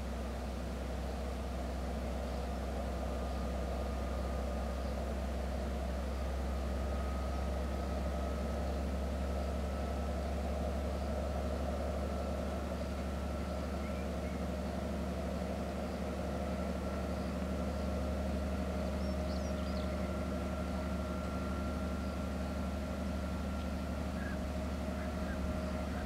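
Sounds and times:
distant diesel locomotive droning: 0.0 - 26.0.

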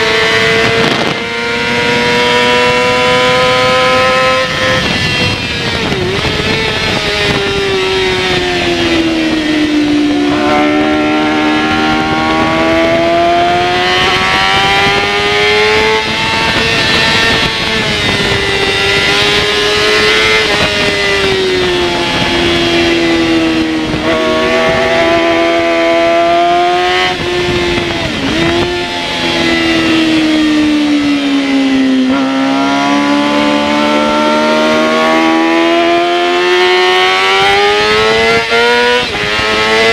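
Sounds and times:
race motorcycle engine accelerating: 0.0 - 39.9
wind noise rushing: 0.0 - 39.9.

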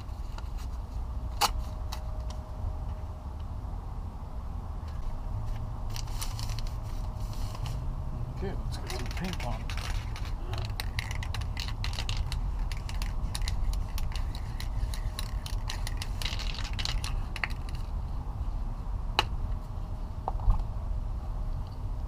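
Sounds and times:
steady low rumble: 0.0 - 22.0
spray can mixing ball rattling: 8.8 - 17.9.

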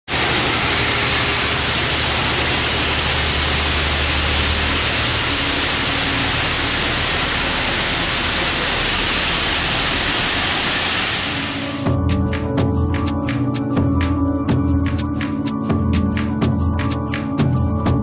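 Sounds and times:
grain pouring: 0.1 - 11.8
low machinery hum: 0.1 - 11.8.

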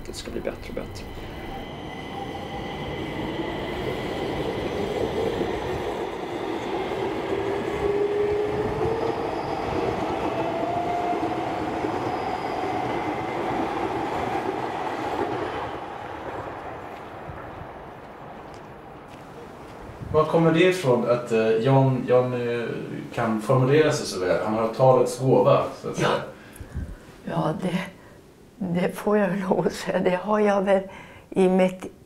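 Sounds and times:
metro train rushing rumble: 0.0 - 21.6
gliding whining tones: 0.4 - 16.8.

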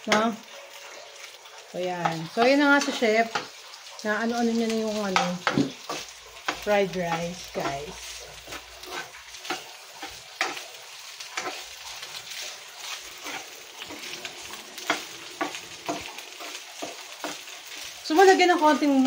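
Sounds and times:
rice sizzling in a pan: 0.0 - 19.0
spoon scraping and knocking pan: 2.0 - 3.6, 4.7 - 18.3.

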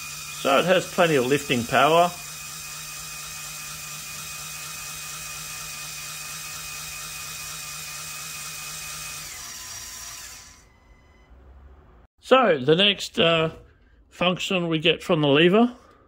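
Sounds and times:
electric motor gear whine: 0.0 - 11.7.

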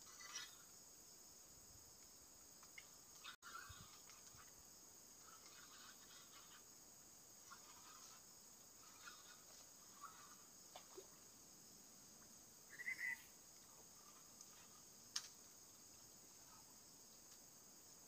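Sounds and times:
insects chirring: 0.0 - 18.0
soft ticks: 2.0 - 3.3
chirp-like sound: 12.7 - 13.3.

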